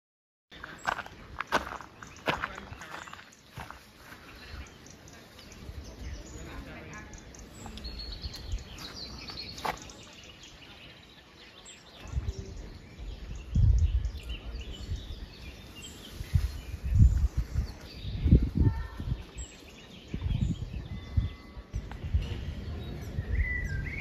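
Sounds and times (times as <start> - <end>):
small birds chirping: 0.5 - 24.0
low rumbling on microphone: 11.9 - 24.0.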